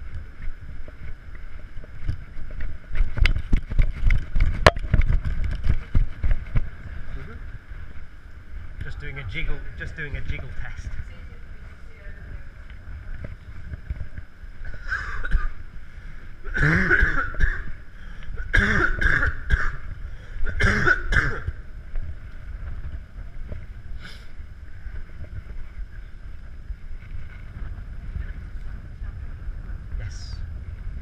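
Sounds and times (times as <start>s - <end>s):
wind buffeting microphone: 0.0s - 31.0s
person coughing: 14.9s - 15.6s, 16.5s - 17.8s, 18.4s - 19.8s, 20.5s - 21.5s.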